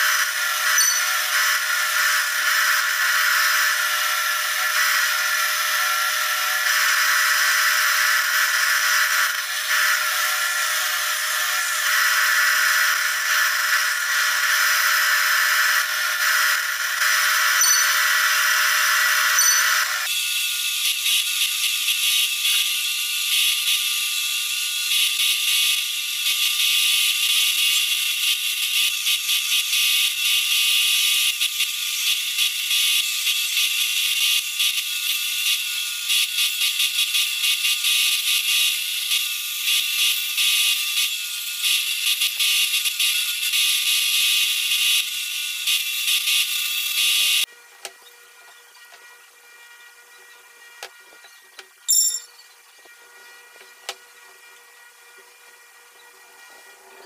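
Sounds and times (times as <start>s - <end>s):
disc sander whirring: 0.0s - 20.1s.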